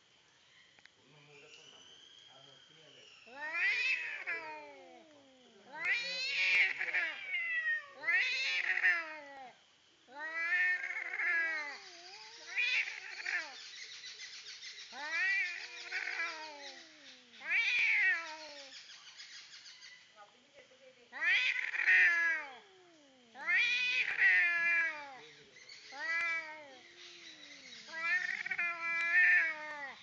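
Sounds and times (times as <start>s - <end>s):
cats yowling: 3.3s - 13.6s, 14.9s - 18.7s, 21.1s - 30.0s.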